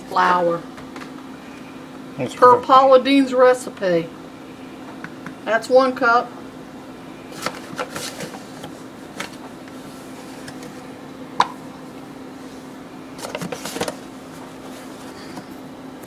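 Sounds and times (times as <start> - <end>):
steady low hum: 0.0 - 16.0
paper bag rustling: 7.3 - 10.5.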